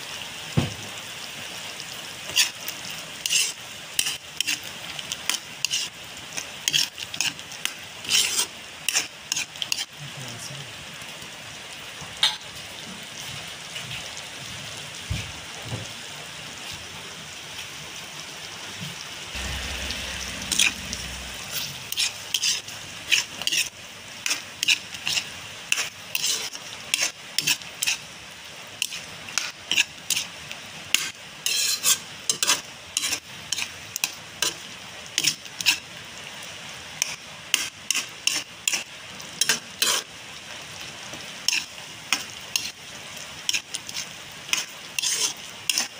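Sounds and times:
food simmering with sizzling hiss: 0.0s - 45.9s
ladle clinking and scraping pan: 3.2s - 5.9s, 6.6s - 7.4s, 8.0s - 9.9s, 19.4s - 28.0s, 31.0s - 34.6s, 43.5s - 45.9s.

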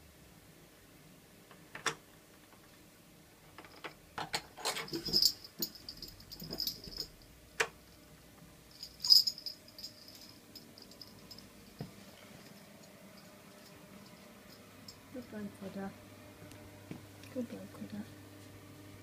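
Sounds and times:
bright jingling rattle: 4.8s - 7.3s, 8.7s - 11.8s.

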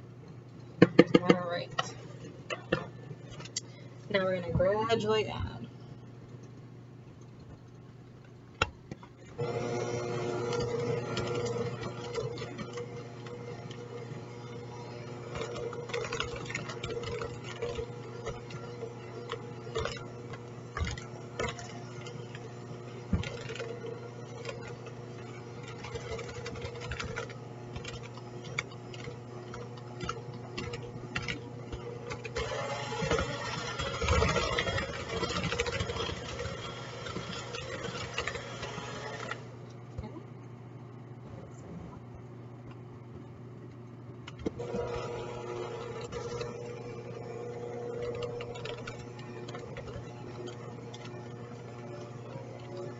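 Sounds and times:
beaters knocking plastic bowl: 0.8s - 1.4s
electric hand mixer running: 9.4s - 39.6s, 44.6s - 52.9s.

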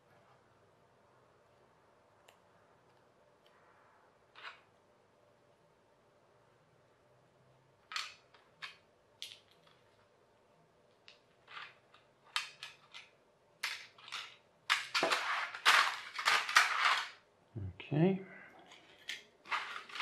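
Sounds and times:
plastic pieces clattering: 7.8s - 9.9s, 11.1s - 17.2s, 18.8s - 20.0s
plastic toy parts clicking: 7.9s - 9.8s, 11.0s - 17.2s.

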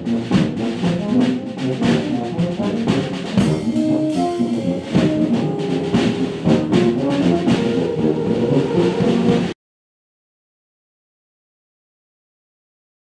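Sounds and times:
brass instruments playing tune: 0.0s - 9.6s
drum beat: 0.0s - 9.6s.

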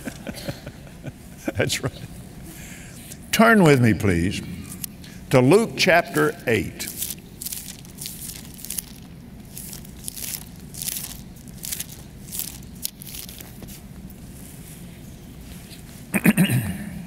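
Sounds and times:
low steady hum: 0.0s - 17.0s
book pages rustling: 6.1s - 14.8s.

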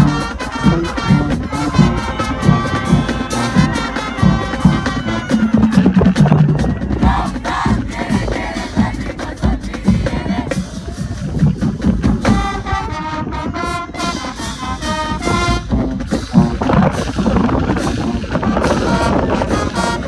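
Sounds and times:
short punched brass notes: 0.0s - 6.4s, 12.2s - 17.1s
heavy drums: 0.0s - 20.0s
marching band playing: 0.0s - 20.0s.

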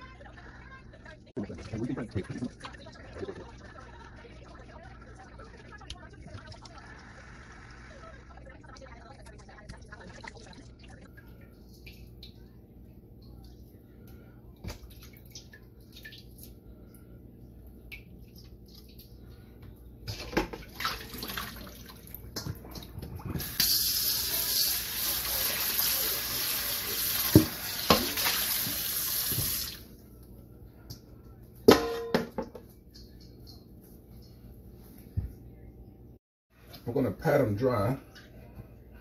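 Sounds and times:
faucet running into metal bowl: 23.4s - 29.8s.

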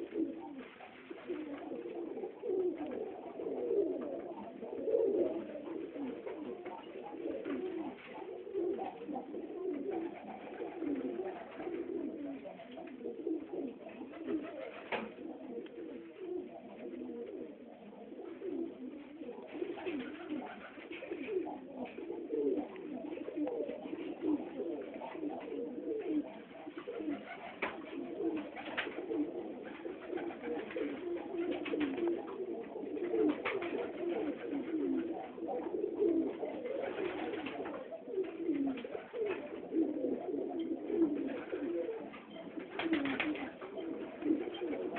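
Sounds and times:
pigeons cooing: 0.0s - 44.9s
pigeon wing claps: 14.1s - 15.2s, 19.5s - 21.4s, 26.7s - 32.3s, 33.1s - 35.0s, 36.6s - 37.8s, 41.2s - 44.9s.

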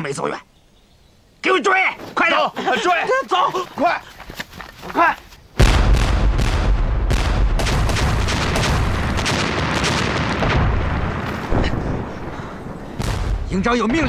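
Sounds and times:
artillery guns firing: 5.6s - 14.0s
shells bursting: 5.6s - 14.0s.

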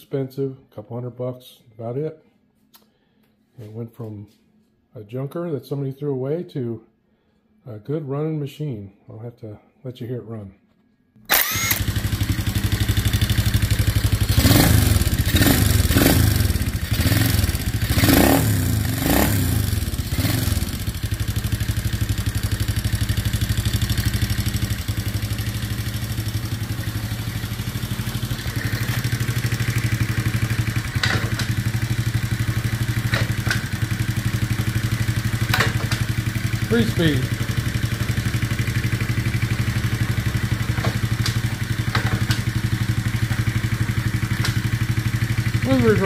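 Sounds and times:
sharp clicks: 11.3s - 11.9s
small engine idling and revving: 11.3s - 46.0s.

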